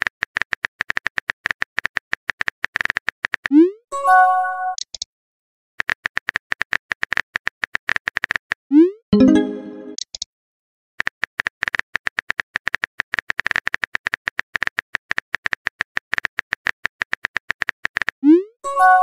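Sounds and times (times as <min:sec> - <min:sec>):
rapid keyboard typing clicks: 0:00.0 - 0:03.5, 0:05.8 - 0:08.5, 0:11.0 - 0:18.2.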